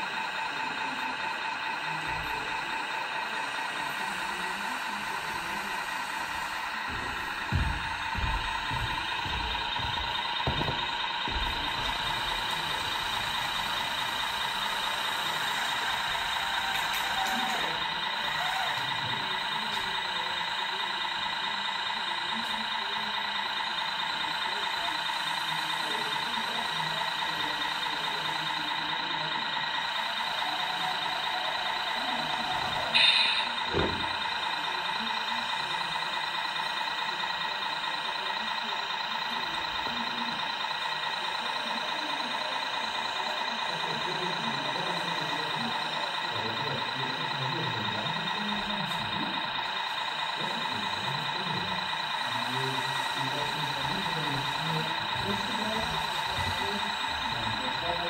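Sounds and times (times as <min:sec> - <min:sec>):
indistinct voices: 0:00.0 - 0:58.0
model machine mechanical whine: 0:00.0 - 0:58.0.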